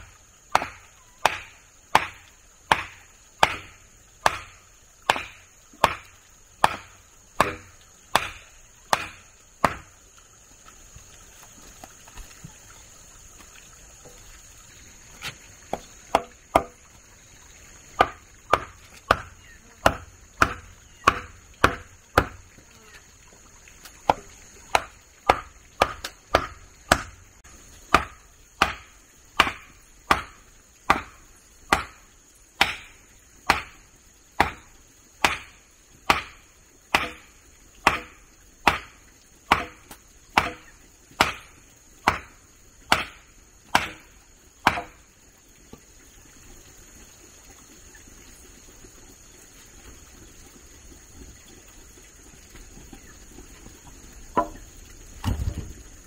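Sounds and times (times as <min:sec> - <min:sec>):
hand tool chopping: 0:00.5 - 0:09.9, 0:18.0 - 0:22.4, 0:24.1 - 0:27.2, 0:27.9 - 0:32.0, 0:32.6 - 0:33.8, 0:34.4 - 0:45.0.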